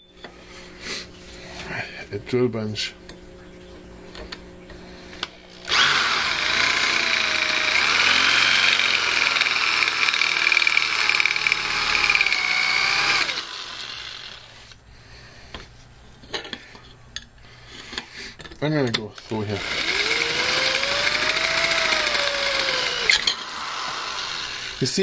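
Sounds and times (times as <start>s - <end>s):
electric drill grinding into metal: 5.2s - 14.8s, 19.2s - 25.0s.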